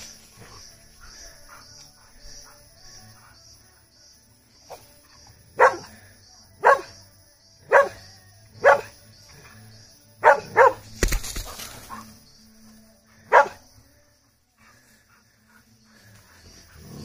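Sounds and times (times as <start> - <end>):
dog barking: 5.6 - 5.9, 6.6 - 6.9, 7.7 - 8.0, 8.6 - 8.9, 10.2 - 10.8, 13.3 - 13.6.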